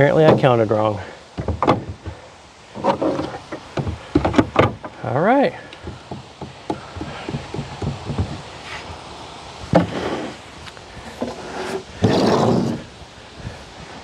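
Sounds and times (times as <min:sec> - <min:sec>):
sharp knock on wood: 0:05.8 - 0:08.4.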